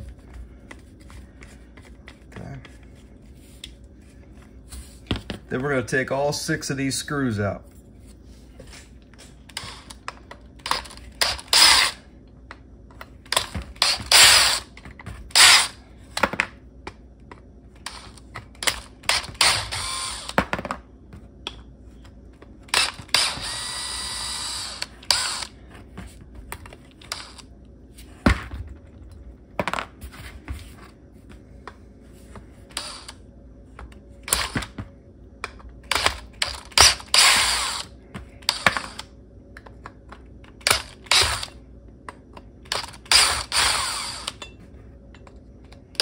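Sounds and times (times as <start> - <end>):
cordless driver running screws: 10.6 - 12.0, 13.3 - 14.7, 15.3 - 15.7, 18.6 - 20.4, 22.7 - 25.5, 32.8 - 33.1, 35.9 - 37.9, 40.6 - 41.5, 42.7 - 44.4.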